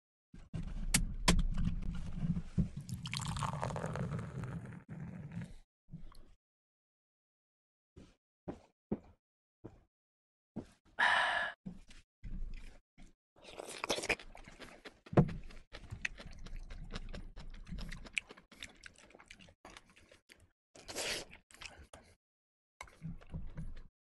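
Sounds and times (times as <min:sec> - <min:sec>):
breathy exhale: 0:11.0 - 0:11.6
wet chewing: 0:13.4 - 0:22.1.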